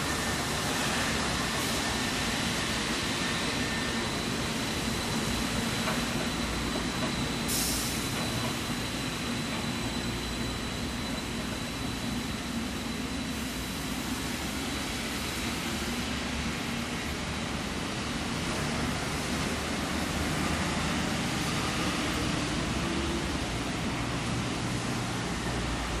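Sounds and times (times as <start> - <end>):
train high whine: 0.0 - 26.0
train rushing noise: 0.0 - 26.0
wet-road traffic: 18.4 - 26.0.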